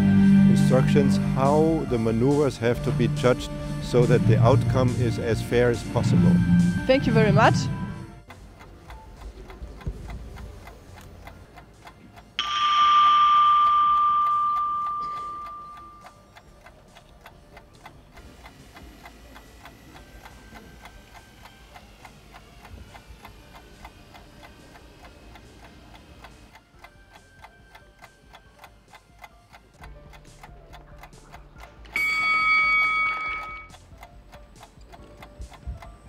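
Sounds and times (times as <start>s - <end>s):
rapid clock ticking: 8.2s - 36.0s
bell-like chime: 12.4s - 16.2s, 32.0s - 33.7s
faint sustained tones: 12.4s - 16.3s.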